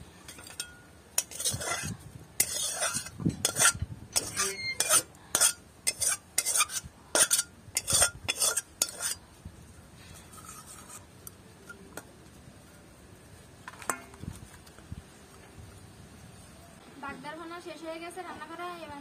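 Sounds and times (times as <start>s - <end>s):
metal spatula scraping wok: 0.2s - 9.2s, 10.2s - 11.8s.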